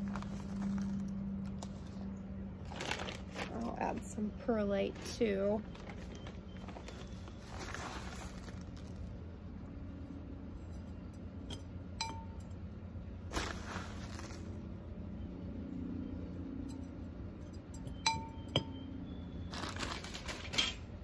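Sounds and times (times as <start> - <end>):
grainy rustling pouring: 5.8 - 9.2, 13.3 - 14.6
metal spoon clinking on ceramic pot: 10.6 - 12.6, 16.6 - 18.9.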